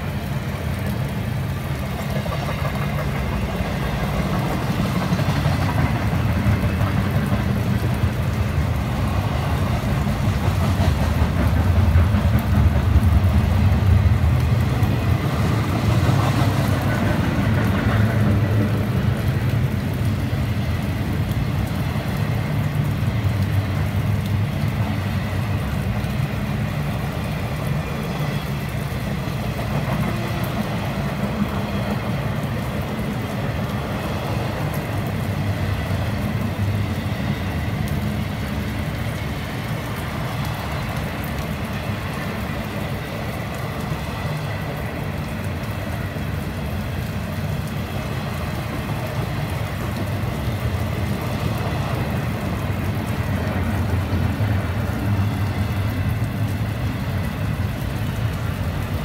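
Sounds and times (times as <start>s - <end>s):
freight train wheels rumbling: 0.0s - 59.0s.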